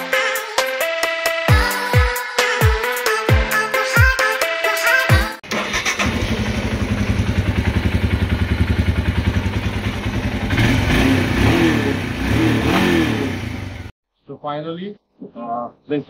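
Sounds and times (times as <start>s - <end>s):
motorcycle engine idling and revving: 5.4s - 14.0s.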